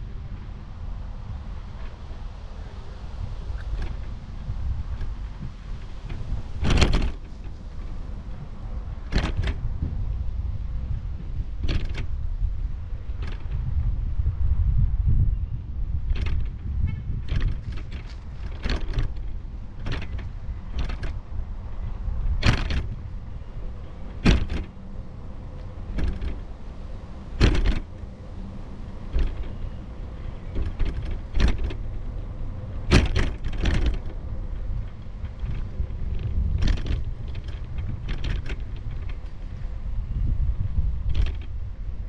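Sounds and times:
rolling over rough asphalt: 0.0 - 14.5, 15.9 - 42.0
wind rumble: 0.0 - 42.0
knocks and rattles: 4.8 - 10.1, 11.6 - 12.1, 13.1 - 13.6, 16.1 - 16.6, 17.2 - 21.4, 22.2 - 23.1, 23.8 - 24.8, 25.6 - 26.5, 27.3 - 28.0, 29.0 - 39.6, 41.0 - 41.6.

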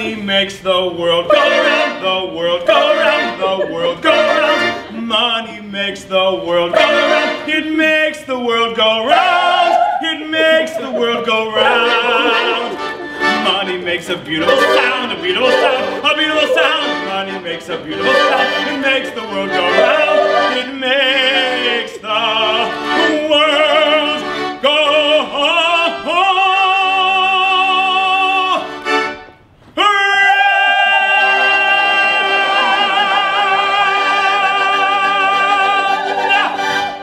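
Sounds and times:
person singing operatically: 0.0 - 28.8, 29.8 - 37.0.

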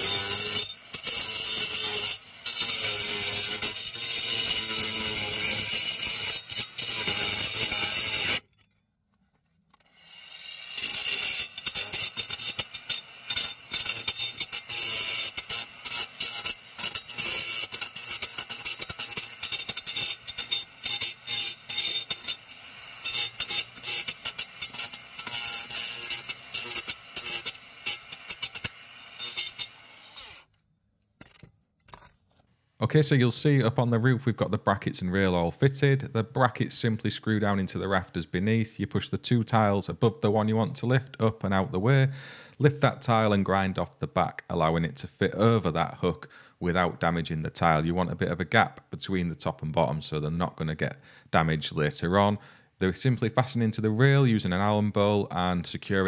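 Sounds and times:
angle grinder cutting concrete: 0.0 - 8.4, 9.9 - 30.5.

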